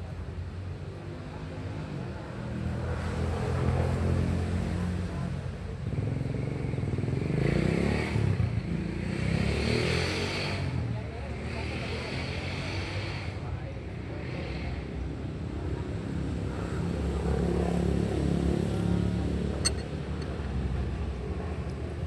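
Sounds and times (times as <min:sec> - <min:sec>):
motorcycles passing: 0:05.9 - 0:22.0.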